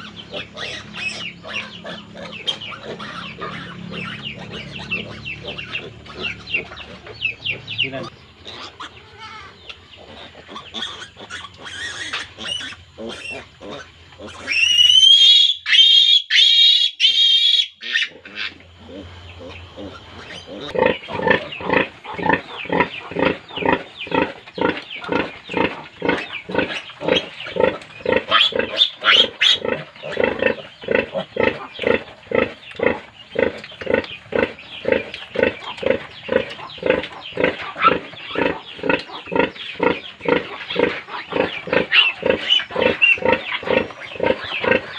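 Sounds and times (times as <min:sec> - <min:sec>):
piglet squealing: 0:00.0 - 0:06.8, 0:08.4 - 0:24.2, 0:26.5 - 0:30.4, 0:40.3 - 0:44.9
sow grunting: 0:17.8 - 0:44.9.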